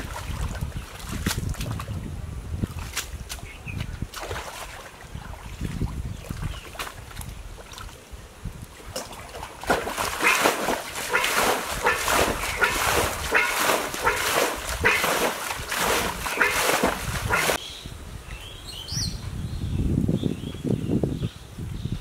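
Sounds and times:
water splashing from bailing: 0.0 - 2.0, 8.8 - 17.6.

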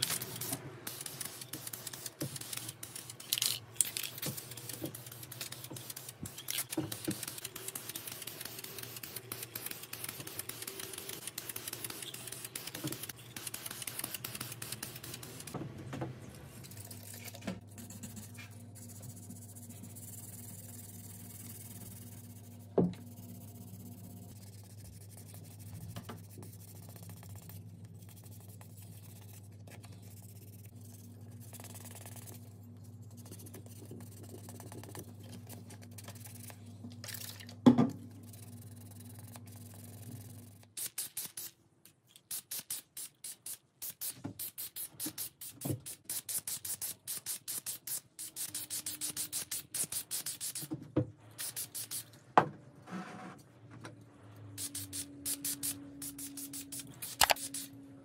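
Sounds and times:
spray paint hissing: 0.0 - 15.5, 38.2 - 41.6, 42.3 - 50.7, 51.4 - 52.0, 54.6 - 57.8
sandpaper rubbing on metal: 54.6 - 57.8.

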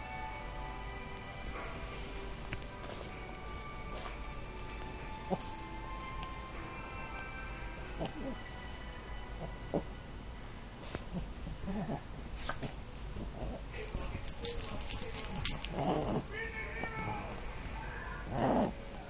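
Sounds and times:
bedding rustling and scuffling: 1.6 - 6.3, 10.8 - 17.8.

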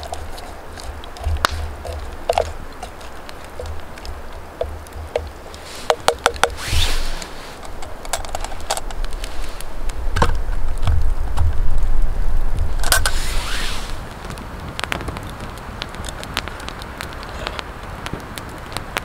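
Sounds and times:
stick stirring beans in metal pot: 0.0 - 9.7
soft hiss: 0.0 - 15.1
campfire crackling and popping: 0.0 - 19.0.

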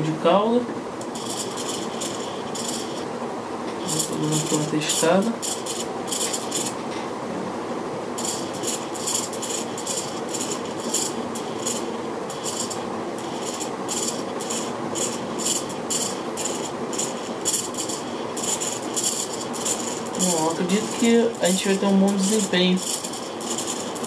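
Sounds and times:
steady hiss: 0.0 - 24.0.

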